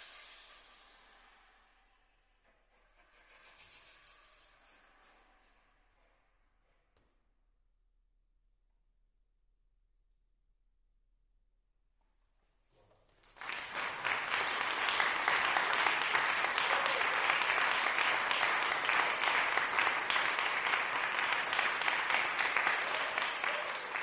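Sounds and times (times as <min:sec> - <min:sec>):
audience applause: 0:13.2 - 0:24.0.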